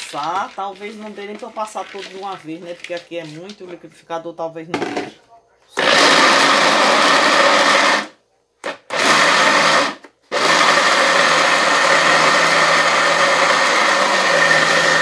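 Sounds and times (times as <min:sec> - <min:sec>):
blender grinding corn kernels: 0:05.8 - 0:15.0.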